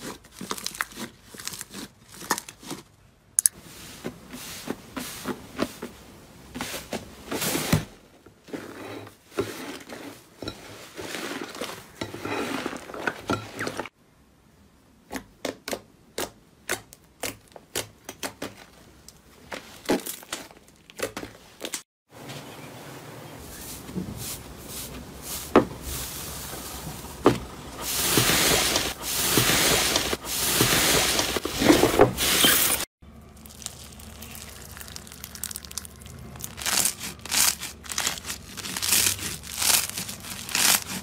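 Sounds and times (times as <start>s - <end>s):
slime crackling and popping: 33.4s - 41.0s.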